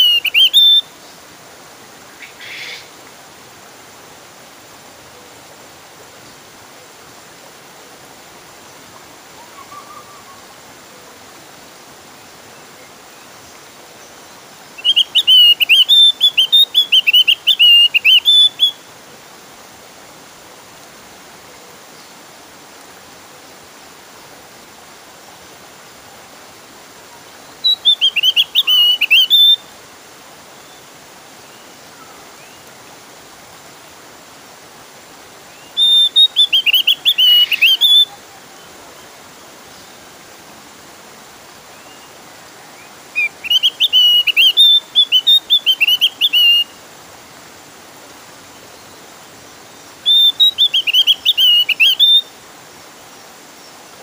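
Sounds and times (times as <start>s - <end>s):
bird singing rapid high chirps: 0.0s - 0.9s, 14.8s - 18.8s, 27.6s - 29.6s, 35.6s - 38.1s, 43.2s - 46.7s, 50.1s - 52.3s
steady hiss: 0.0s - 54.0s.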